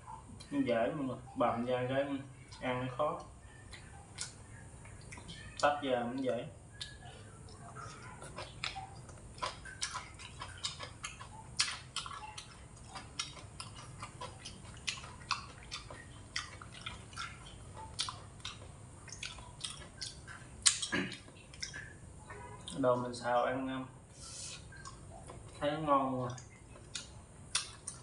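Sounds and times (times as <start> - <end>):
chewing and smacking: 2.4 - 23.1, 24.4 - 28.0
mouth clicks: 3.2 - 22.0.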